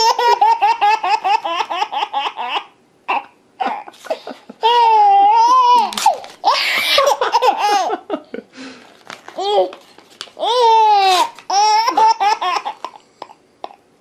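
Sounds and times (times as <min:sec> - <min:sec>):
baby laughing: 0:00.0 - 0:08.1, 0:09.4 - 0:09.8, 0:10.4 - 0:13.8
paper tearing: 0:05.8 - 0:06.4.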